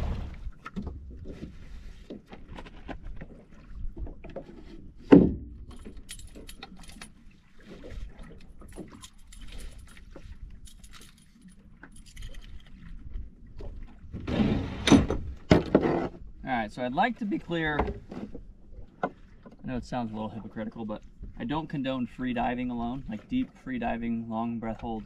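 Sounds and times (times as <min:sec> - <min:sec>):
steady low rumble: 0:00.0 - 0:01.1
gear knocks and rattles: 0:04.0 - 0:07.2.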